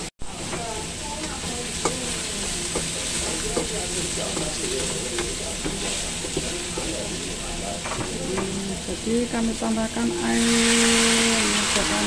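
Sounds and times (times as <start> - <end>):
vegetables sizzling in oil: 0.0 - 12.0
spatula scraping a pan: 1.7 - 7.4.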